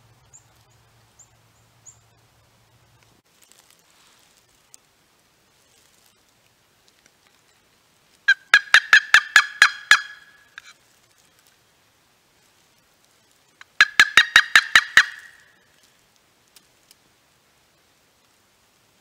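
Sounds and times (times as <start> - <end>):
turkey yelping: 8.3 - 10.6, 13.6 - 15.5.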